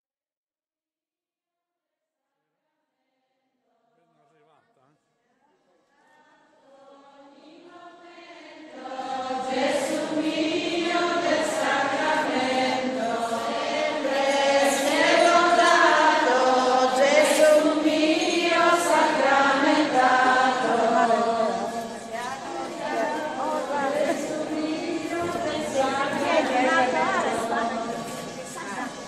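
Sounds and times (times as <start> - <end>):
congregation singing a hymn: 5.9 - 29.0.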